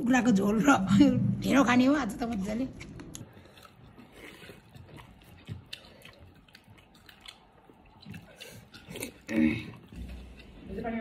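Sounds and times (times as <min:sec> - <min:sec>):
person chewing quietly: 0:02.8 - 0:11.0.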